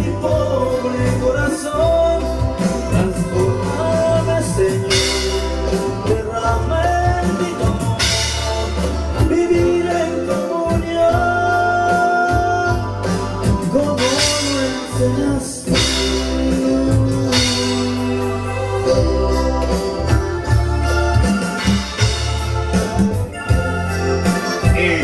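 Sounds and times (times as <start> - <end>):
man singing: 0.0 - 19.3, 24.4 - 25.0
live gospel band music: 0.0 - 25.0.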